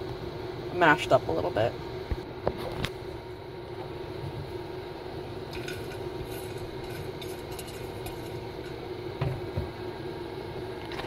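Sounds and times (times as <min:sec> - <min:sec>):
steady low hum: 0:00.0 - 0:11.0
spatula scraping nuts in a pan: 0:05.6 - 0:08.8.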